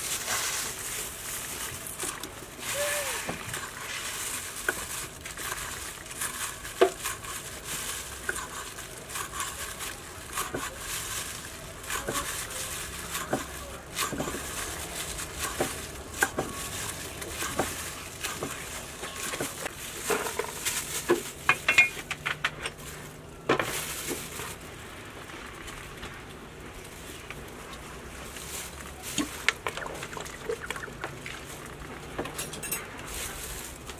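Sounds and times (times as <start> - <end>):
food handled in a bowl: 3.3 - 24.6.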